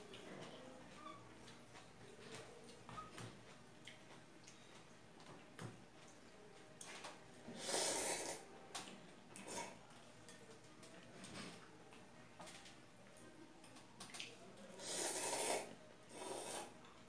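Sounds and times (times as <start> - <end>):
person slurping noodles: 7.6 - 8.4, 14.8 - 16.7.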